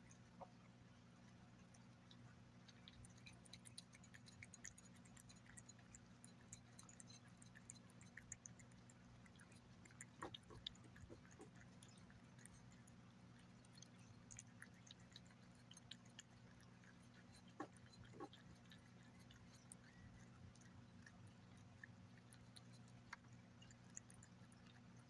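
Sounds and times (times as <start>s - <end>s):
cat licking and chewing food: 0.0s - 25.0s
low steady hum: 0.0s - 25.0s.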